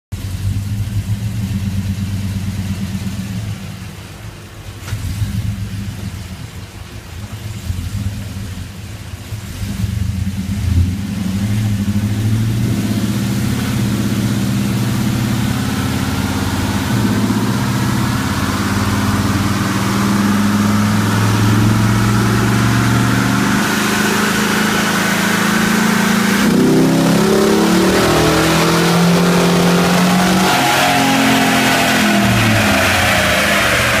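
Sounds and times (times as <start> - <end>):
car engine running on dyno: 9.2 - 34.0
whine climbing in pitch: 11.3 - 34.0.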